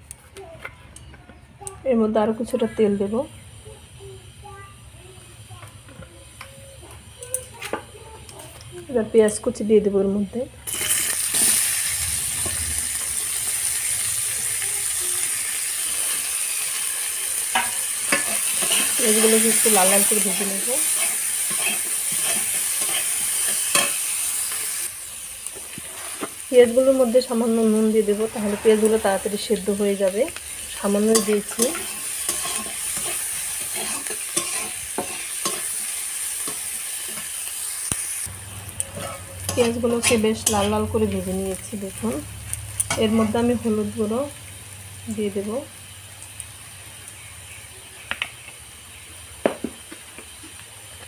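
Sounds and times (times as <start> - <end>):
onions sizzling in hot oil: 1.8 - 51.0
metal spatula scraping pan: 17.5 - 24.1, 28.1 - 29.5, 30.8 - 37.3, 38.8 - 41.2, 42.8 - 43.6
spatula clicking on pan: 20.9 - 24.0.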